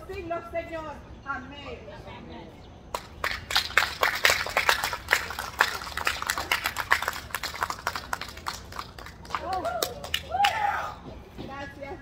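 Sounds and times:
people clapping: 2.9 - 10.6.

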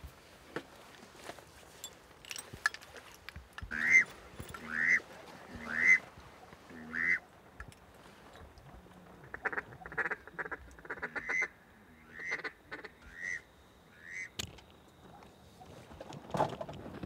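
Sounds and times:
duck quacking: 3.7 - 4.0, 4.6 - 5.0, 5.6 - 6.0, 6.7 - 7.2, 9.2 - 14.3.

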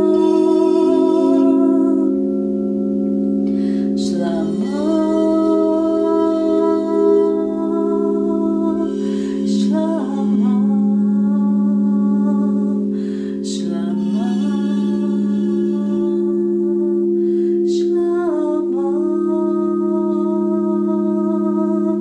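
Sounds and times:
crystal singing bowls ringing: 0.0 - 22.0
woman breathing in: 3.4 - 4.0, 8.9 - 9.5, 12.8 - 13.5, 17.1 - 17.7.

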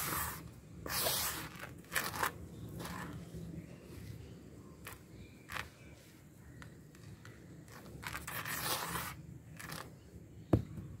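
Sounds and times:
hand scraping dry dirt: 0.0 - 3.2, 7.7 - 9.8.

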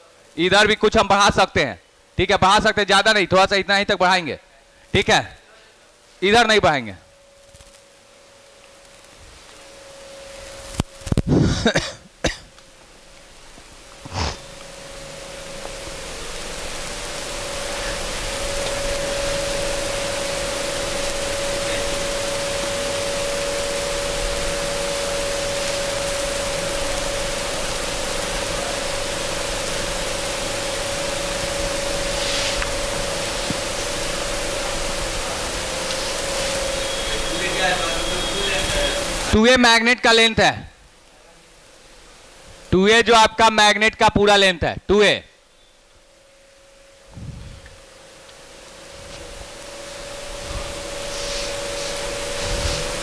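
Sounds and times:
faint steady hum: 0.0 - 53.0
room noise hiss: 0.0 - 53.0
person coughing: 11.3 - 12.5.

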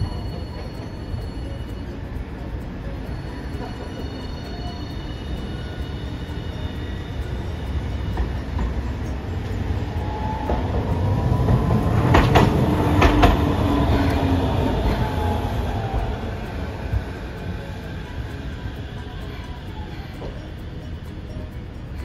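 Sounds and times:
tram rumbling past: 0.0 - 22.0
wheels clacking over rail joints: 5.4 - 21.2.

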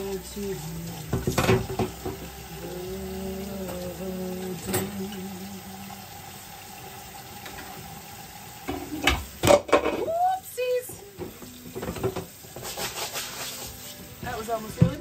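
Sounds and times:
tap running into metal sink: 0.9 - 2.4, 3.5 - 5.3, 7.4 - 8.0, 8.6 - 10.1, 11.2 - 12.6
dish clattering: 1.0 - 2.3, 3.6 - 5.2, 8.6 - 10.1, 11.2 - 15.0.

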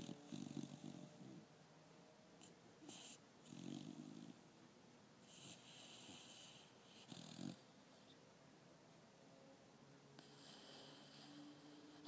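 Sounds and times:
puppy snoring: 0.0 - 1.5, 2.4 - 4.5, 5.2 - 8.2, 10.2 - 12.0.

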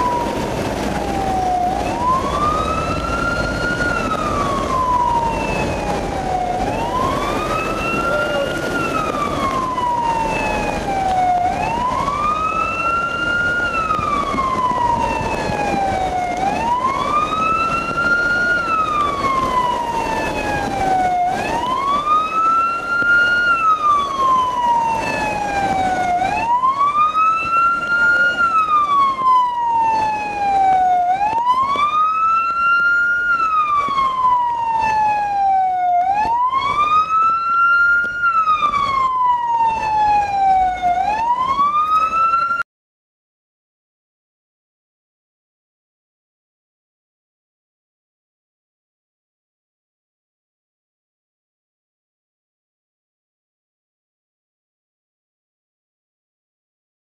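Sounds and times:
ambulance siren wailing: 0.0 - 42.7.

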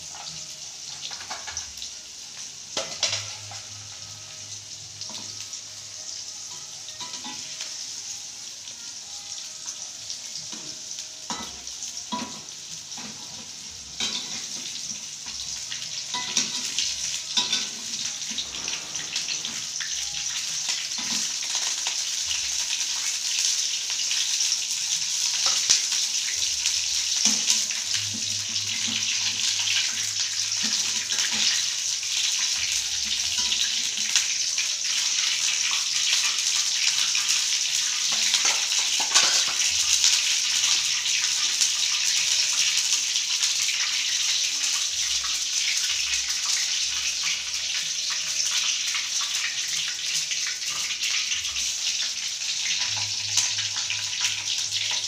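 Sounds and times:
oil sizzling in a wok: 0.0 - 55.0
metal utensils clicking on pan: 0.1 - 1.9, 2.8 - 3.7, 6.5 - 7.7, 10.5 - 15.4, 16.0 - 23.1, 25.2 - 44.9.

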